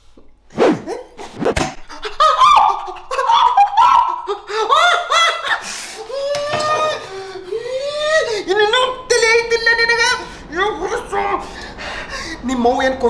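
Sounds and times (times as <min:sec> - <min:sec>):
person laughing hard: 0:00.8 - 0:08.3.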